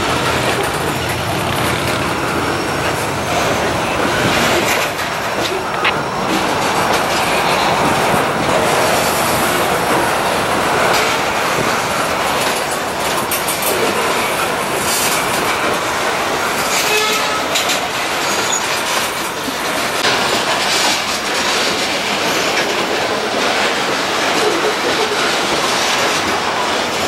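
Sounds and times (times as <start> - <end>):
rumble of train wheels on rail: 0.0 - 27.0
wheels clicking over rail joints: 0.0 - 27.0
faint wheel squeal: 18.2 - 18.8.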